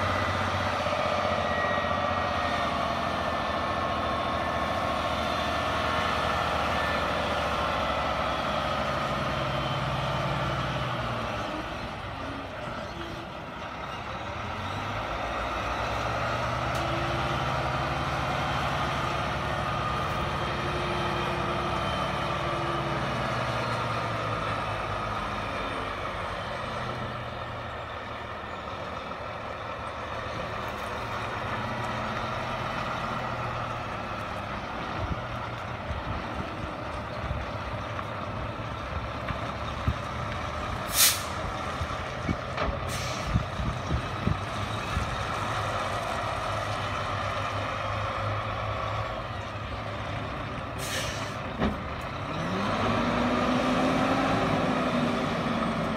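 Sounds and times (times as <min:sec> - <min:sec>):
truck engine running: 0:00.0 - 0:55.9
air brake hiss: 0:40.9 - 0:41.4, 0:42.9 - 0:43.4, 0:50.8 - 0:51.4.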